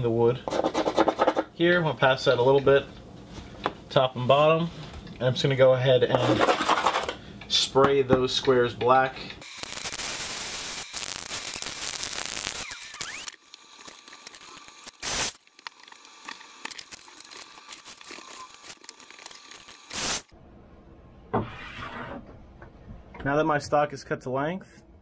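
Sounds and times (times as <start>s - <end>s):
aerosol spray paint hissing: 9.5s - 13.2s, 14.7s - 15.4s, 19.8s - 20.3s.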